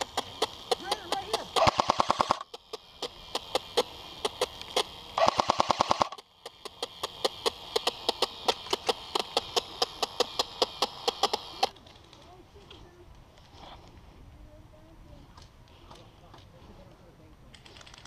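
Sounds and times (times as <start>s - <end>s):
airsoft guns firing: 0.0s - 11.7s.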